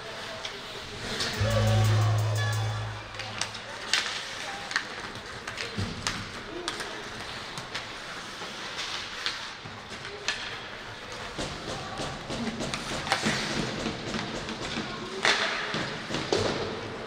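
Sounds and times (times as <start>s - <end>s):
hockey sticks and puck clacking: 3.8s - 17.0s.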